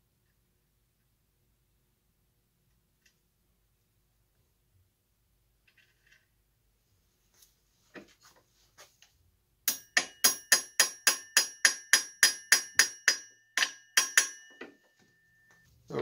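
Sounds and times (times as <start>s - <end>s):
hammer tapping metal: 9.7s - 15.6s.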